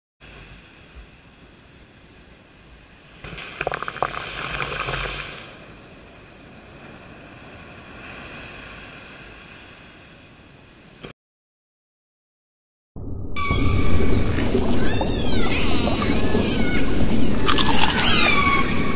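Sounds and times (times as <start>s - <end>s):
surf washing over sand: 0.2s - 11.1s.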